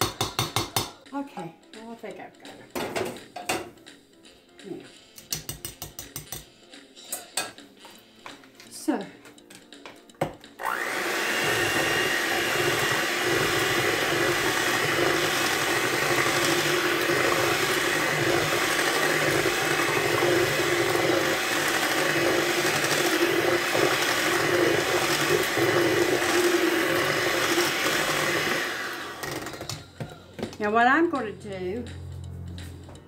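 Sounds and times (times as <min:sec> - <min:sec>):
electric hand mixer whirring: 0:10.6 - 0:29.8.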